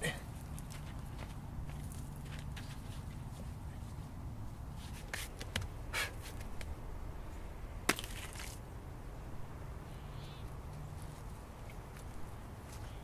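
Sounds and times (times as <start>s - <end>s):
gritty rustle: 7.9s - 8.6s.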